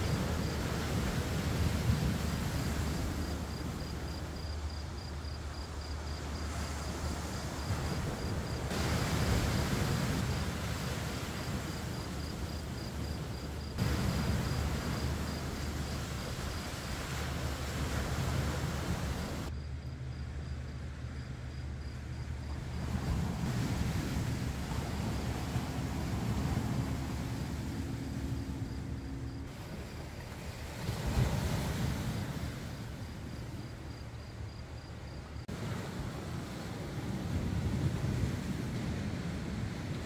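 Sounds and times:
wind rumbling on microphone: 0.0s - 19.5s, 21.8s - 40.0s
cricket trill: 0.0s - 35.4s.

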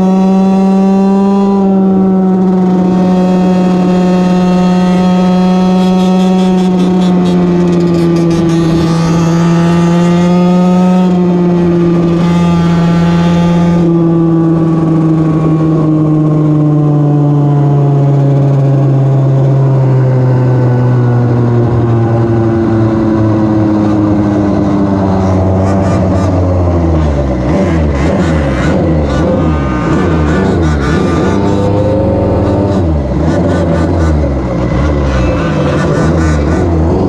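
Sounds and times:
small two-stroke engine revving: 0.0s - 14.0s, 23.3s - 37.0s
other engines: 0.0s - 37.0s.

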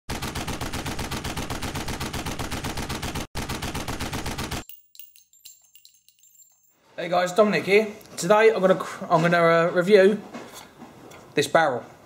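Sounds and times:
automatic gunfire: 0.1s - 4.6s.

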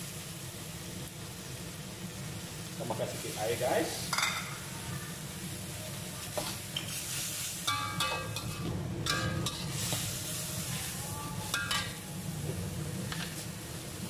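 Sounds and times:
greens sizzling in a wok: 0.0s - 14.0s
metal spatula clinking on wok: 7.7s - 9.6s, 11.5s - 12.0s.

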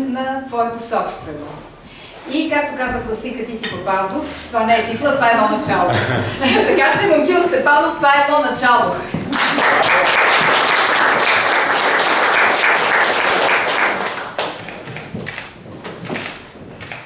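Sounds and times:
audience applauding: 9.3s - 15.1s.

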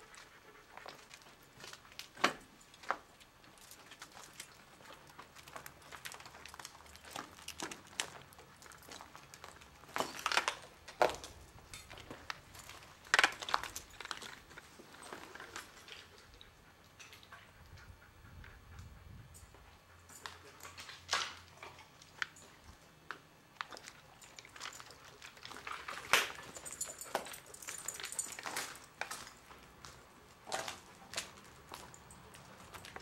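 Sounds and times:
footsteps crunching over debris: 2.8s - 16.0s, 23.5s - 33.0s.

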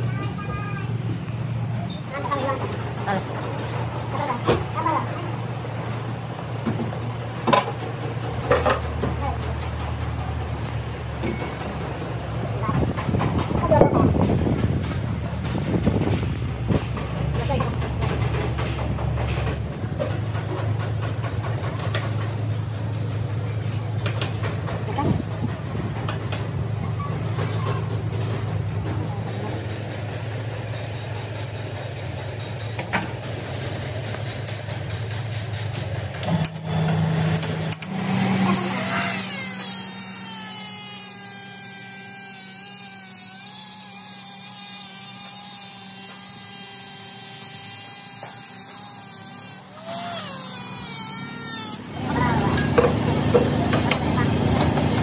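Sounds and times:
metal lathe running: 28.0s - 55.0s.

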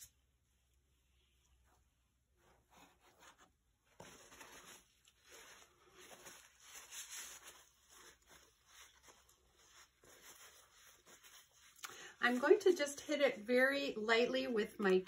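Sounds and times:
rustling and scraping: 1.6s - 13.3s.

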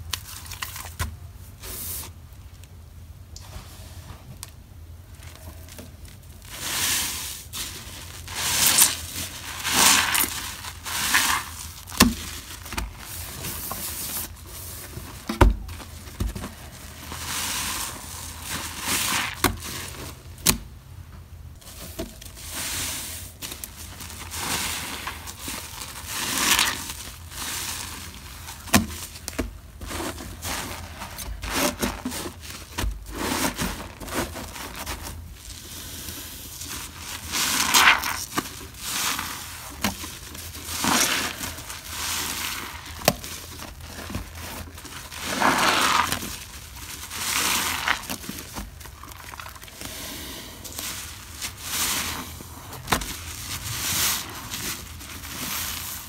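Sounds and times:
foam crackling: 5.1s - 20.2s, 21.6s - 56.0s
wet sponge squelching: 6.4s - 14.7s, 15.8s - 20.2s, 22.3s - 29.2s, 33.0s - 56.0s.

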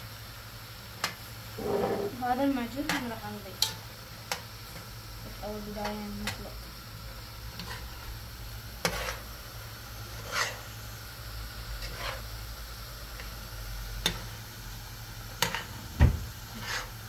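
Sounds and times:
spoon scraping and knocking pot: 1.6s - 2.2s.

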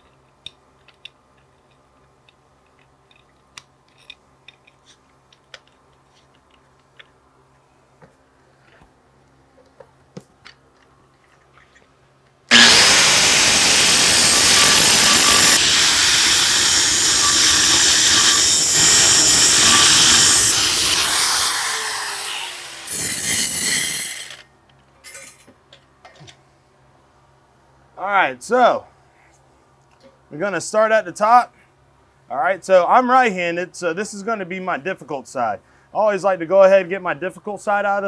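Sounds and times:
angle grinder grinding steel: 12.5s - 24.4s.

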